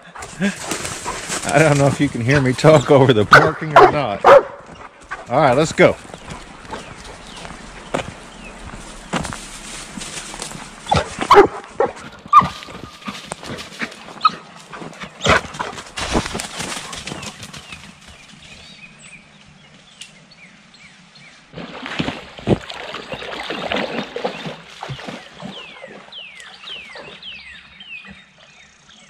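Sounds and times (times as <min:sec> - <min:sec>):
dog splashing in creek: 0:00.2 - 0:18.2, 0:21.5 - 0:27.2
dogs barking: 0:03.3 - 0:05.4, 0:10.1 - 0:13.2, 0:13.8 - 0:15.9.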